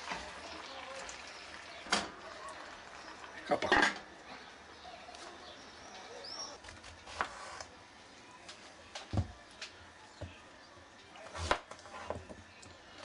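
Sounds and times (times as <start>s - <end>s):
faint chirp: 0.5s - 6.7s.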